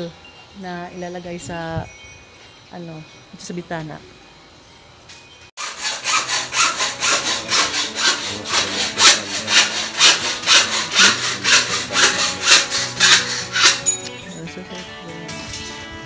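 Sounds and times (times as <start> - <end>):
hand saw strokes: 5.6 - 14.1.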